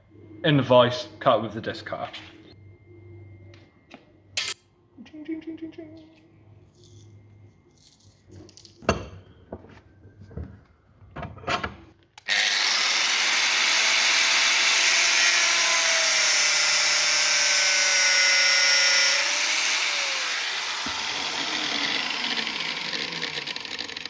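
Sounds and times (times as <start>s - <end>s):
angle grinder cutting hose: 12.2s - 24.0s.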